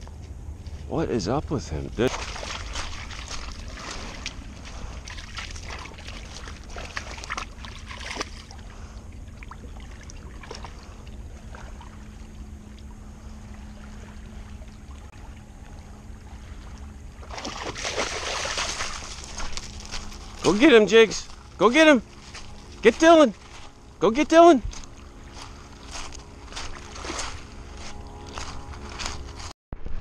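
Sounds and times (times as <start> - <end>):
dog splashing in water: 2.0 - 8.6, 17.2 - 20.6
paws clicking on rocks: 2.1 - 8.4.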